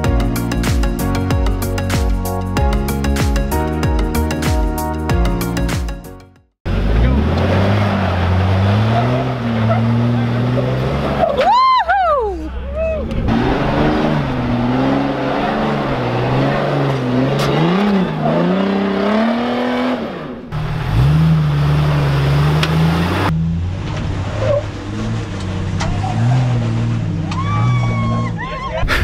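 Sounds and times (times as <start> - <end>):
engine revving: 6.7 - 11.4, 13.0 - 28.3.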